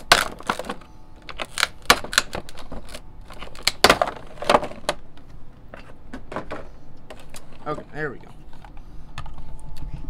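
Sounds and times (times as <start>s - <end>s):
plastic packaging crackling: 0.0s - 5.2s.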